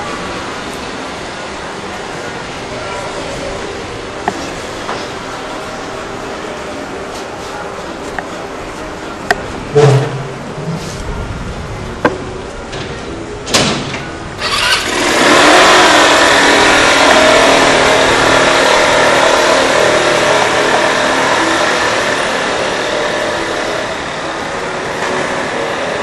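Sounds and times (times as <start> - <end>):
small motorcycle engine revving: 14.4 - 24.4.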